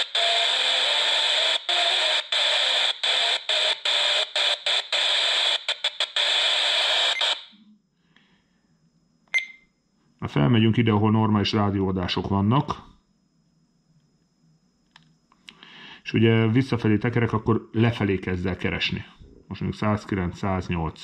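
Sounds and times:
short beep: 9.3s - 9.7s
radio static hiss: 15.7s - 21.0s.

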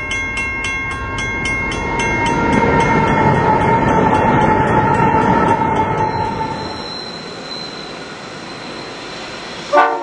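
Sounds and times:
train wagons rolling: 1.1s - 9.0s
high-pitched wheel squeal: 1.8s - 9.2s.

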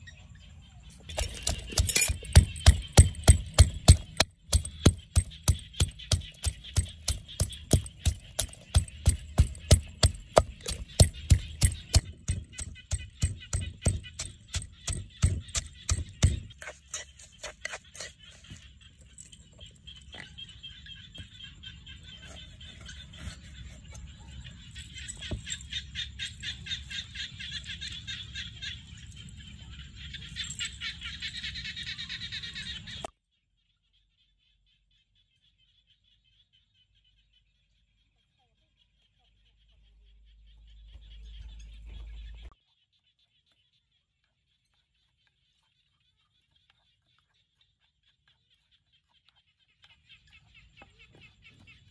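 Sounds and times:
pestle pounding in clay mortar: 1.1s - 18.2s.

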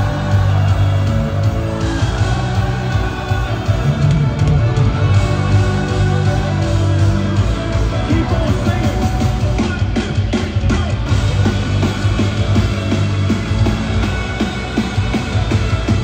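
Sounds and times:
live rock band playing: 0.0s - 16.0s
steady drum beat: 0.0s - 16.0s.

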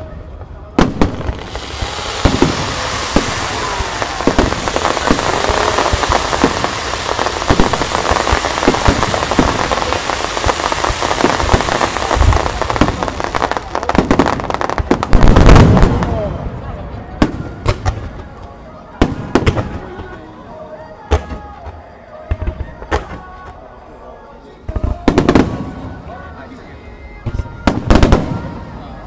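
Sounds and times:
fireworks crackling: 0.0s - 23.8s, 24.6s - 29.0s
firework bangs: 0.8s - 18.3s, 19.0s - 20.3s, 24.7s - 26.0s, 27.3s - 28.8s.

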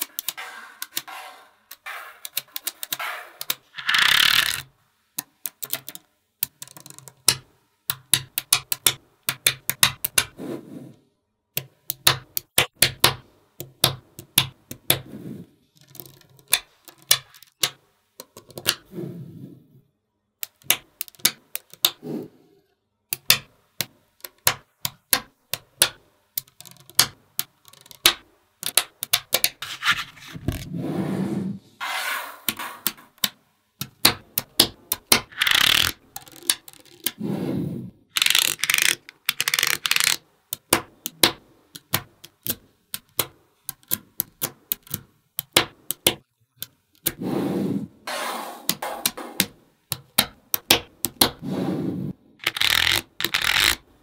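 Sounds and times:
balls scraping: 0.0s - 4.7s, 29.4s - 40.2s, 51.1s - 53.9s
magnetic balls clicking together: 0.0s - 10.4s, 11.5s - 15.0s, 15.8s - 18.8s, 20.4s - 22.0s, 23.1s - 29.6s, 32.5s - 37.2s, 38.1s - 47.2s, 48.7s - 51.4s, 52.4s - 53.9s.

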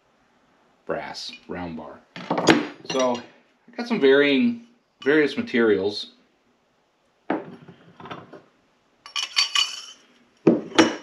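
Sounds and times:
metal tubes clinking and knocking: 2.2s - 3.3s, 9.1s - 11.0s
ringing metallic clink: 2.9s - 3.3s, 9.1s - 10.1s.

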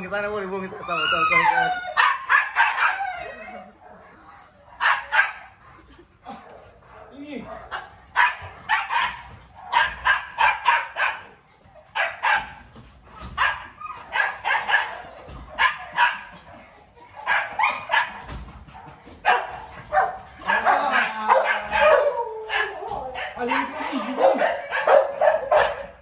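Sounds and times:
dog barking: 2.0s - 3.0s, 4.8s - 5.5s, 7.0s - 11.4s, 12.0s - 12.6s, 13.4s - 16.3s, 17.2s - 18.3s, 19.2s - 26.0s.

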